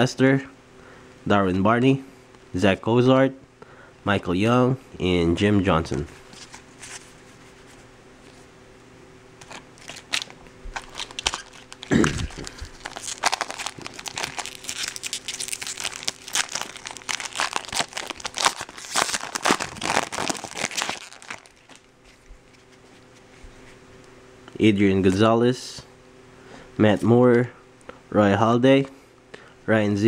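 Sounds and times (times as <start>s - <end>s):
foil wrapper crinkling and tearing: 9.4s - 22.2s.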